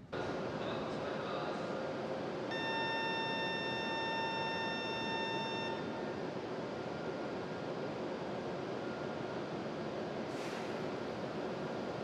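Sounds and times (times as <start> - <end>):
electronic warning beep: 2.5 - 6.0.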